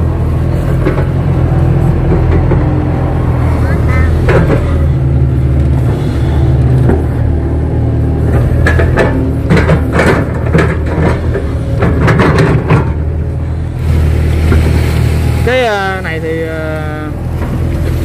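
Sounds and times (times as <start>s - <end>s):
excavator diesel engine running: 0.0s - 18.0s
knocks and clatters: 0.4s - 3.3s, 4.0s - 7.3s, 8.2s - 13.6s.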